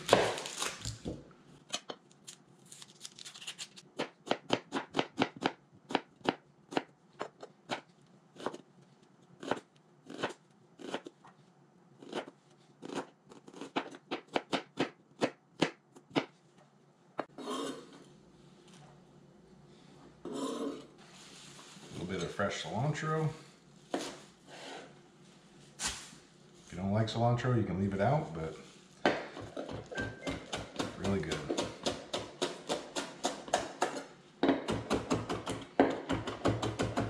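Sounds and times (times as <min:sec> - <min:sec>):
knife scraping onion off board: 0:17.3 - 0:18.1, 0:20.2 - 0:20.9.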